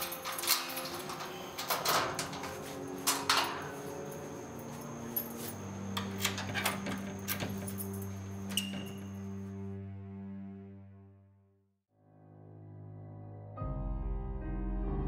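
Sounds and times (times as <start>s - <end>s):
metal door lock clicking: 0.0s - 4.2s, 5.9s - 9.4s
keys rattling: 0.0s - 9.4s.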